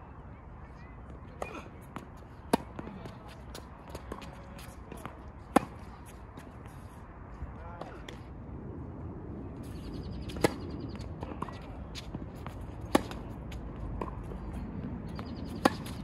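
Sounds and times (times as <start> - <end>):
tennis ball bouncing: 1.4 - 6.5, 9.8 - 16.0
tennis racket striking ball: 12.8 - 13.3.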